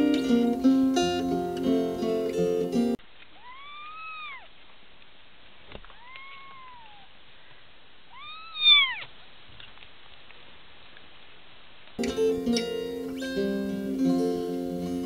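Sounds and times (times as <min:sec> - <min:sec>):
acoustic guitar music: 0:00.0 - 0:03.0, 0:12.0 - 0:15.0
kittens mewing: 0:03.4 - 0:04.5, 0:05.8 - 0:07.1, 0:08.1 - 0:09.1.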